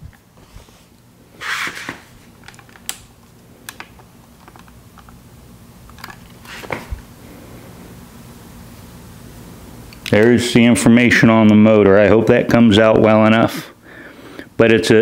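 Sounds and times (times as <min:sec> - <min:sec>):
rustling scrape: 0:00.4 - 0:02.2
camera handling noise: 0:05.9 - 0:07.0.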